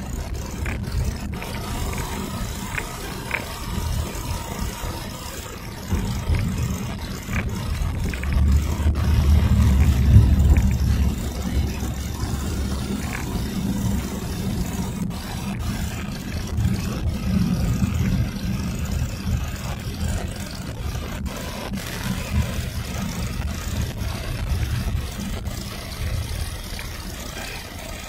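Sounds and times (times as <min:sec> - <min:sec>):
car engine and tyre rumble: 0:00.0 - 0:28.0.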